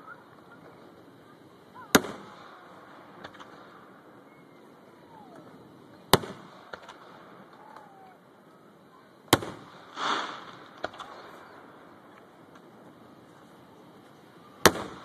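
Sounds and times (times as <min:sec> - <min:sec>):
fireworks bangs: 0:00.0 - 0:15.0
small firework crack: 0:00.0 - 0:15.0
rushing hiss: 0:09.3 - 0:12.1.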